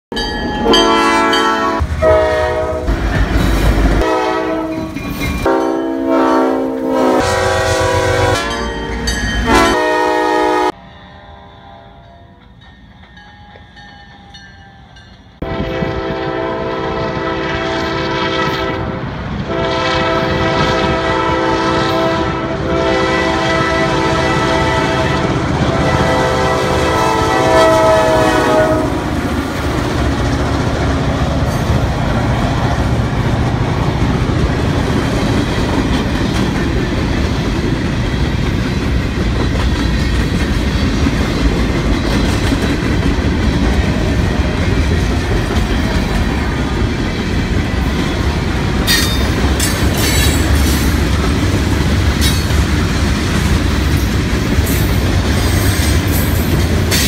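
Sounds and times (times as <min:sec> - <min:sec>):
train horn: 0:00.6 - 0:03.1, 0:03.7 - 0:12.5, 0:15.4 - 0:29.5.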